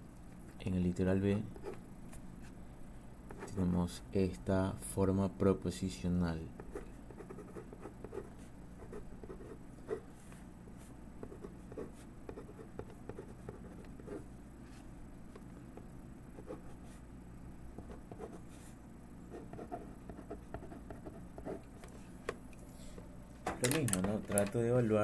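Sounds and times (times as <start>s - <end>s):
steady low hum: 0.0s - 25.0s
pen scratching on paper: 6.6s - 10.0s, 11.2s - 14.3s, 19.3s - 21.6s.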